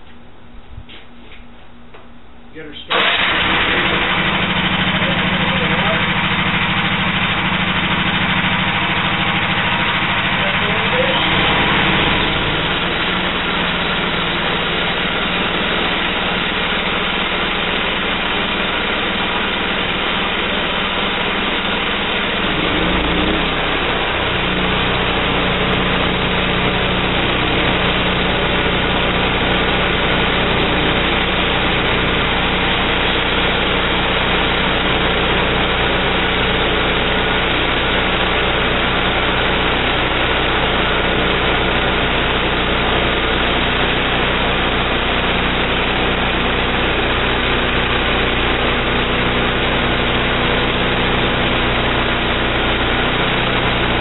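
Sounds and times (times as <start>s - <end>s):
gas engine running: 0.8s - 54.0s
band saw cutting wood: 8.8s - 48.5s.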